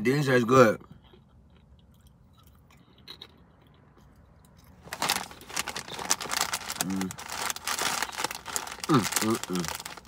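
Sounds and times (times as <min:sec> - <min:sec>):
chip being chewed: 0:01.1 - 0:10.0
chip bag crinkling: 0:04.8 - 0:10.0.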